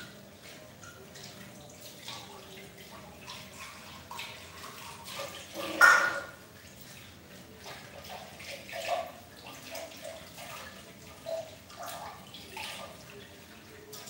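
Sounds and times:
water splashing and dripping: 0:00.0 - 0:14.0
loud splash or clatter: 0:05.6 - 0:06.4.

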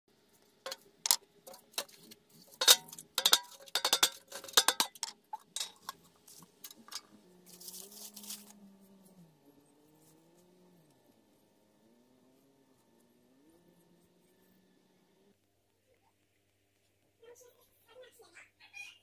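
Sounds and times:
dry paper crinkling: 0:07.4 - 0:08.6.

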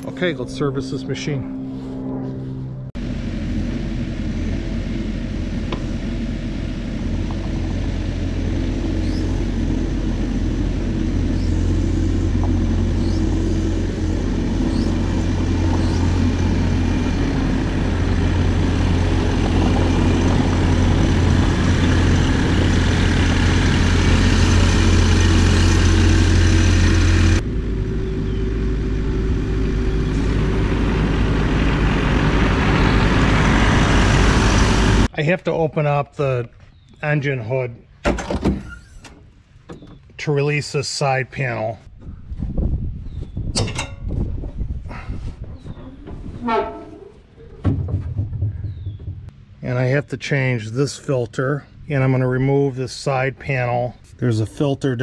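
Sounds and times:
excavator diesel engine running: 0:03.0 - 0:35.1.

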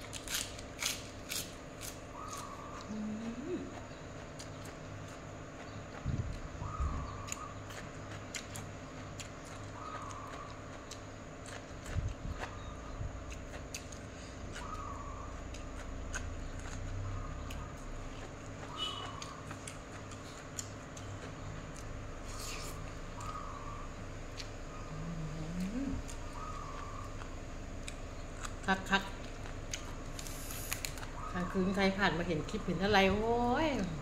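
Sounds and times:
wet chewing and mouth clicks: 0:00.0 - 0:23.6, 0:24.2 - 0:31.6
steady hum: 0:00.0 - 0:34.0
bird calling: 0:02.1 - 0:04.7, 0:06.5 - 0:07.8, 0:09.5 - 0:10.7, 0:14.5 - 0:15.5, 0:18.6 - 0:19.6, 0:22.3 - 0:27.3.

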